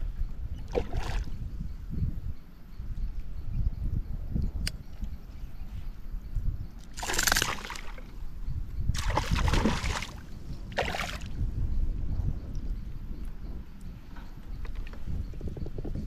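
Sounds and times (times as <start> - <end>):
water splashing and sloshing: 0.6 - 1.4, 6.8 - 8.1, 9.0 - 11.4.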